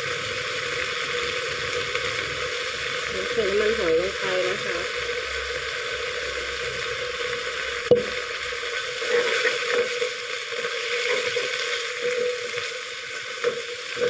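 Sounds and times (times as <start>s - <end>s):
leaves sizzling in a wok: 0.0s - 14.0s.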